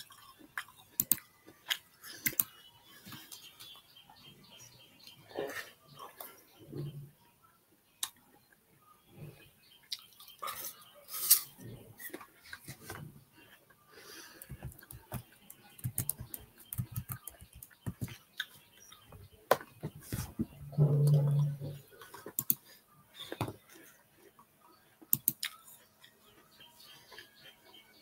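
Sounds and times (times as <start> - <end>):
crunchy chewing: 0.0 - 3.6, 21.1 - 28.0.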